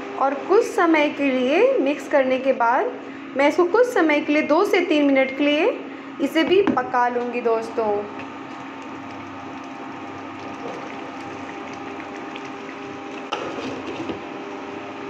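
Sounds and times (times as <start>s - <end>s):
induction cooktop humming: 0.0s - 15.0s
sauce simmering in a pan: 8.3s - 14.2s.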